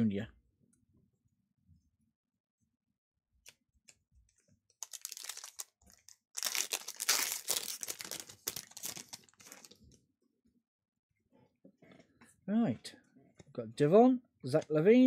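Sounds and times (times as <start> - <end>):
foil wrapper tearing and crinkling: 4.8 - 9.9.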